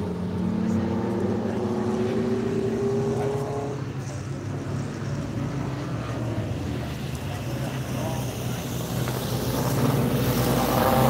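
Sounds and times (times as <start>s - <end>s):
race car engine accelerating: 0.0s - 4.0s, 7.7s - 11.0s
drone of distant engines: 0.0s - 11.0s.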